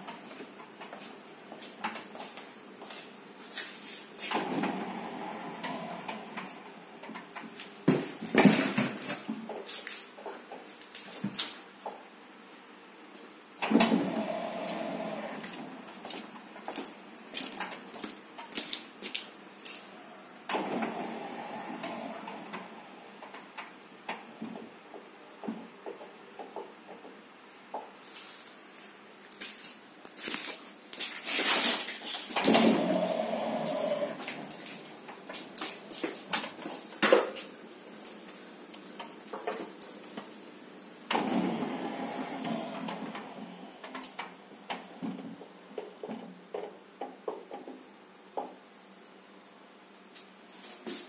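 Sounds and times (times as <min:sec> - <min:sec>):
door drive mechanical running: 0:04.2 - 0:07.4, 0:13.6 - 0:16.2, 0:20.4 - 0:27.0, 0:32.3 - 0:36.9, 0:41.1 - 0:48.5.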